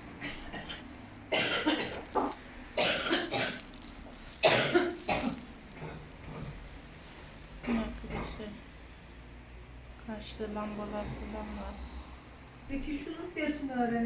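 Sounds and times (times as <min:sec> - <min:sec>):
person coughing: 0:00.2 - 0:06.5, 0:07.6 - 0:08.6.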